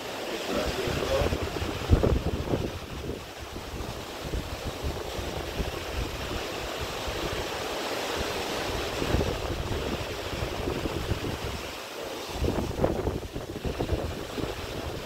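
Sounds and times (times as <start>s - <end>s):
sea water rushing along ship: 0.0s - 15.0s
wind gusting on microphone: 0.0s - 15.0s.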